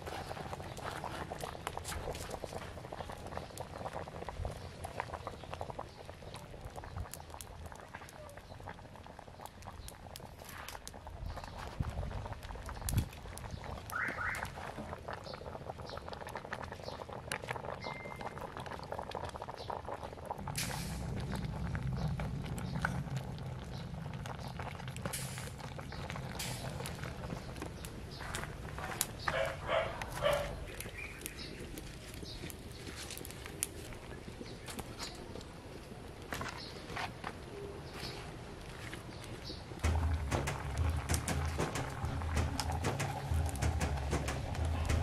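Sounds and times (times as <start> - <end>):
wood fire crackling: 0.0 - 45.0
sharp pops of fire: 12.6 - 15.1, 20.3 - 31.5, 39.5 - 45.0
dog barking: 29.3 - 30.6.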